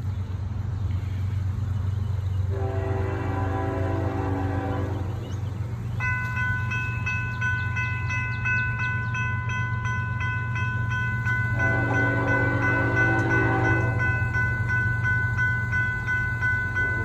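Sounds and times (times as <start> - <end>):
diesel train rumble: 0.0 - 17.0
locomotive horn blast: 2.5 - 5.5, 11.6 - 14.4
crossing bell ringing: 3.8 - 17.0.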